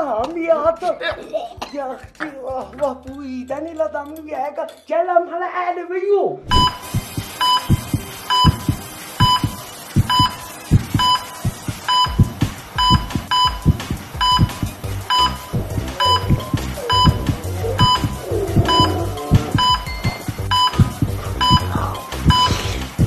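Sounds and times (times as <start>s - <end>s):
electronic monitor beeps: 6.5s - 22.8s
music with thumping beat: 6.5s - 23.0s.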